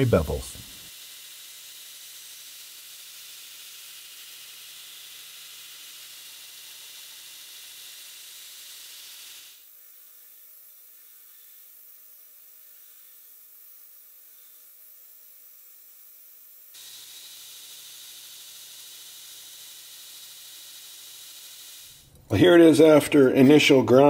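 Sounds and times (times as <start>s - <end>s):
belt grinder grinding steel blade: 0.6s - 9.6s, 16.8s - 22.2s.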